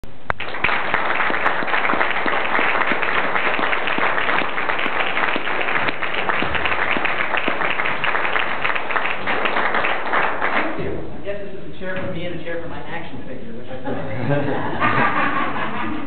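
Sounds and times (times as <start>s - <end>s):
audience applauding: 0.3s - 10.8s.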